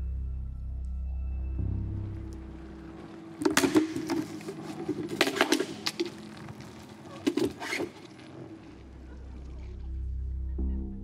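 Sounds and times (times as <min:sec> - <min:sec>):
wood cracking and snapping: 0:03.4 - 0:08.5.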